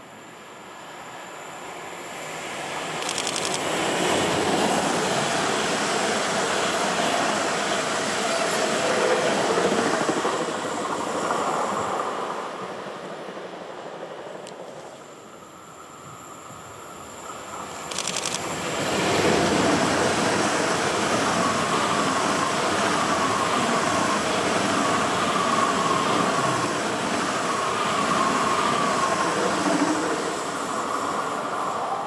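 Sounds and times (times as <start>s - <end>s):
train wheels rumbling on rails: 2.9s - 13.5s.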